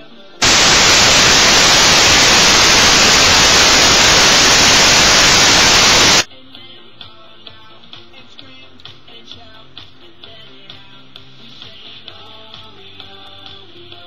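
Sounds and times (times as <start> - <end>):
static hiss: 0.4 - 6.3.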